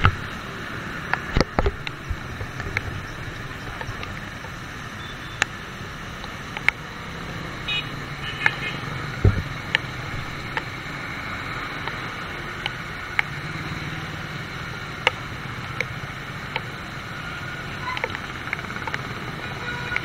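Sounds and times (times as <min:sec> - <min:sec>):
heavy rain hiss: 0:00.0 - 0:20.0
raindrops ticking on helmet: 0:00.0 - 0:20.0
tyres on wet road: 0:00.0 - 0:20.0
low thump: 0:09.2 - 0:09.5.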